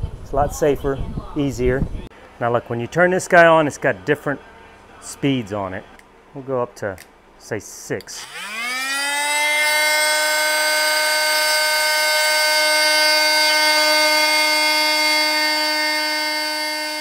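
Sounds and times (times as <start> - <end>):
oscillating multi-tool buzzing whine: 8.2 - 17.0.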